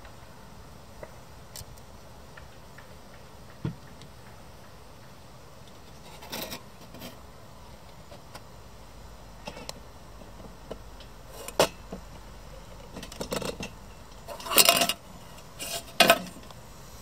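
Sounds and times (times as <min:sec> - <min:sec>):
faint steady hiss: 0:00.0 - 0:17.0
metallic rustles: 0:12.7 - 0:16.5.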